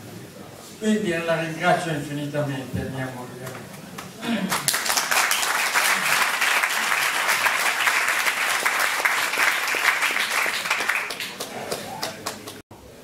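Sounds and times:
audience applauding: 4.0s - 12.6s.

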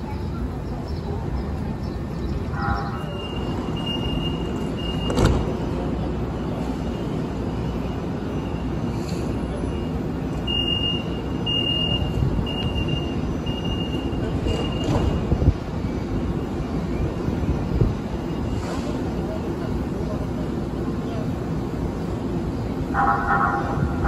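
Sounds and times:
trolleys rumbling at station: 0.0s - 24.0s
high electronic beep: 3.2s - 5.2s.

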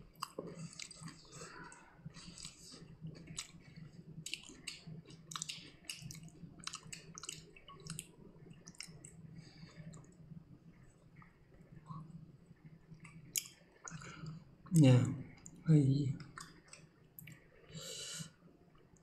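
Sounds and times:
person chewing food: 0.0s - 11.4s, 12.9s - 14.4s, 16.2s - 17.5s
low steady hum: 0.0s - 19.0s.

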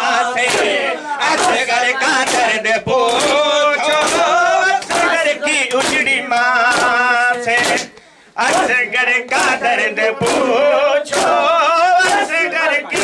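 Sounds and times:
men chanting a lament: 0.0s - 13.0s
hands slapping chests: 0.4s - 0.8s, 2.2s - 8.7s, 9.3s - 9.6s, 10.2s - 10.5s, 11.1s - 11.4s, 12.0s - 13.0s.

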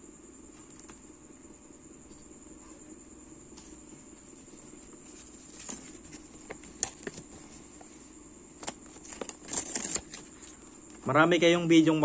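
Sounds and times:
thin high whine: 0.0s - 6.6s
faint hum: 0.0s - 12.0s.

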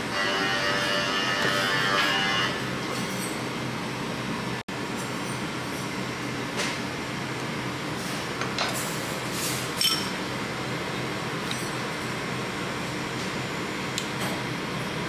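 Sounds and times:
steady background hum: 0.0s - 15.0s
metal spoon clinking on bowl: 9.8s - 10.1s.

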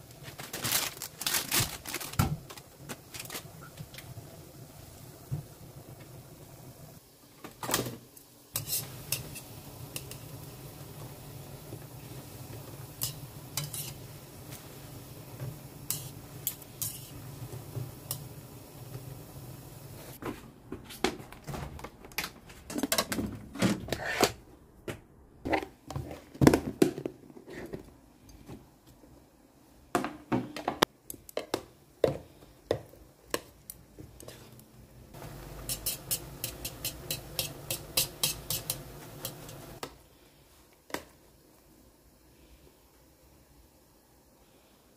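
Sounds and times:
metal chopsticks clicking on pan: 35.7s - 39.6s.

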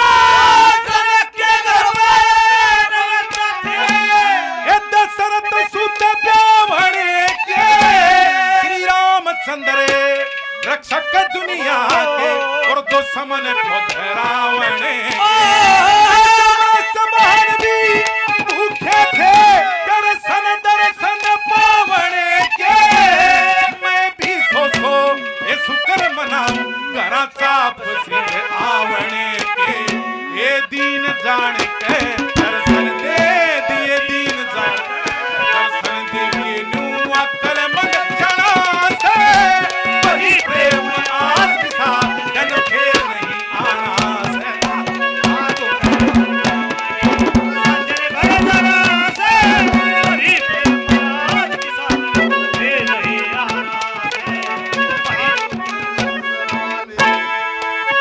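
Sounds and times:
harmonium: 0.0s - 58.0s
man singing: 0.0s - 58.0s
hand percussion on drum and pots: 1.8s - 4.4s, 17.2s - 19.7s, 21.0s - 26.7s, 29.0s - 30.6s, 31.2s - 57.8s.

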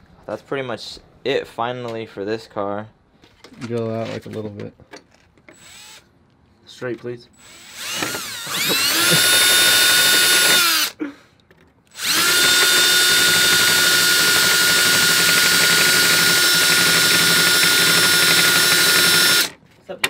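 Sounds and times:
cordless drill motor whine: 5.5s - 6.0s, 7.4s - 11.0s, 11.9s - 19.5s.

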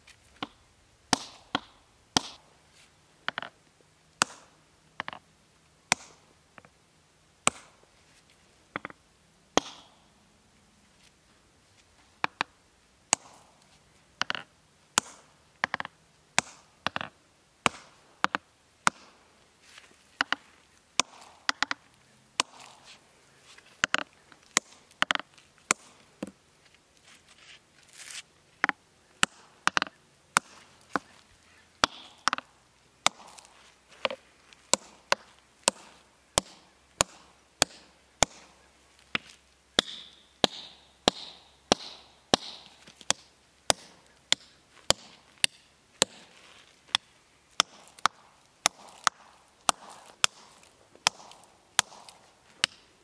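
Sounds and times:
hammer striking steel wedges: 9.6s - 10.0s, 13.1s - 13.5s, 15.0s - 19.1s, 31.8s - 32.4s, 33.0s - 33.4s, 34.0s - 38.5s, 39.8s - 46.3s, 47.6s - 52.9s.

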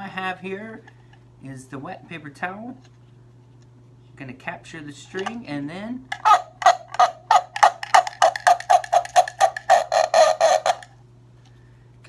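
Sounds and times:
duck-like squawks from cup: 6.2s - 10.9s.

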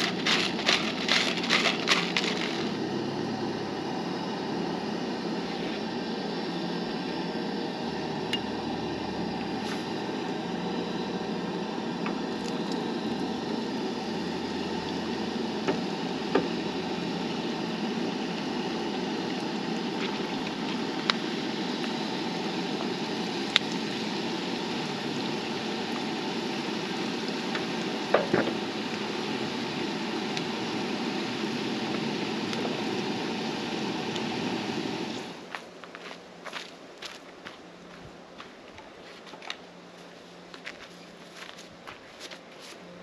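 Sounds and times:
fries sizzling in hot oil: 0.0s - 5.4s, 8.4s - 35.4s.

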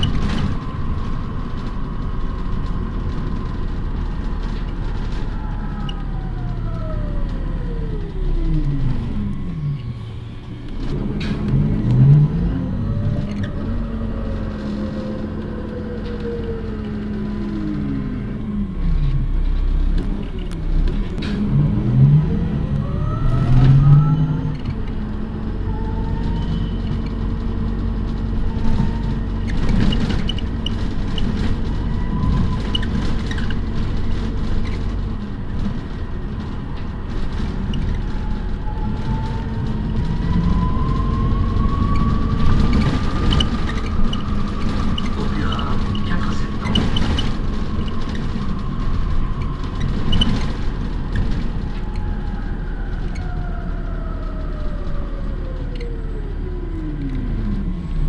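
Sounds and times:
clicks and knocks from bus body: 0.0s - 6.1s, 19.0s - 21.5s, 26.1s - 53.6s
bus drive hum with whine: 0.0s - 58.0s.

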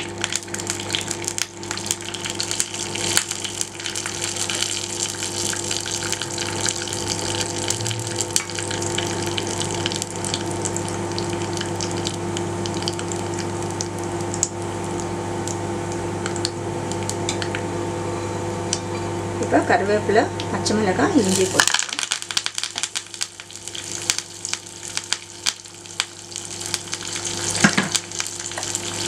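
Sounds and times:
seeds sizzling in hot oil: 0.0s - 15.6s, 21.2s - 29.0s
low hum: 2.2s - 20.6s
small crackling pops: 21.6s - 28.8s.

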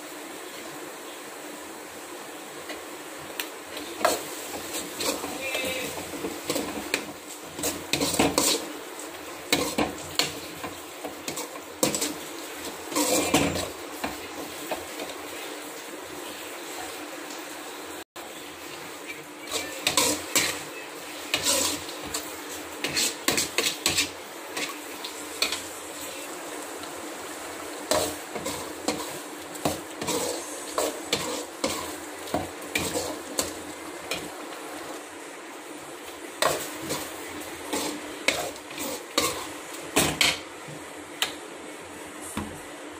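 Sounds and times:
steady hiss: 0.0s - 42.9s
spoon scraping metal pan: 4.0s - 8.8s, 9.5s - 15.2s, 19.1s - 25.7s, 27.9s - 34.3s, 36.4s - 40.4s.

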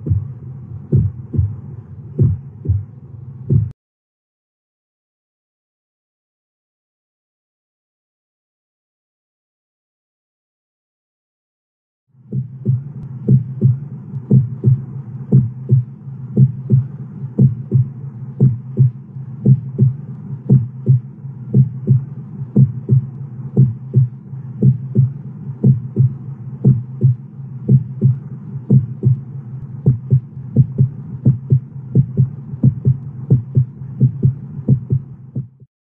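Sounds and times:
heartbeat thumps: 0.0s - 1.6s, 2.2s - 2.9s, 3.5s - 3.8s, 12.3s - 35.7s
steady low hum: 0.0s - 3.8s, 12.2s - 35.7s.

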